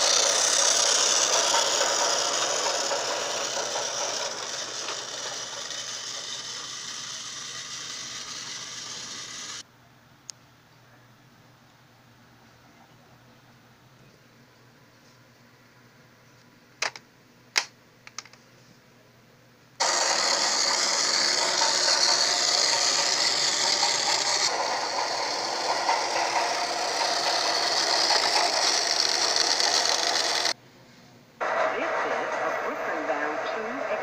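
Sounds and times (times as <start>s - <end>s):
toy train motor whirring: 0.0s - 9.6s, 19.8s - 30.6s
sharp plastic clicks: 16.8s - 18.4s.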